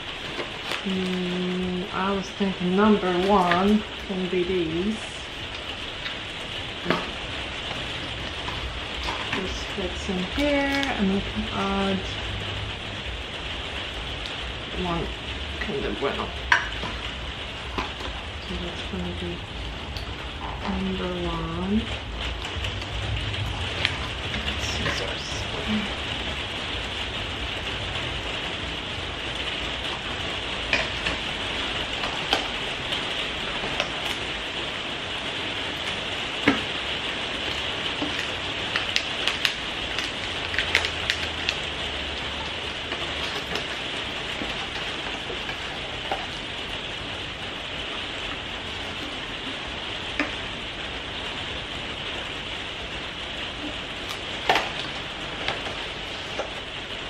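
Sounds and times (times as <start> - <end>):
wrapper crinkling: 0.0 - 4.1, 35.2 - 49.6.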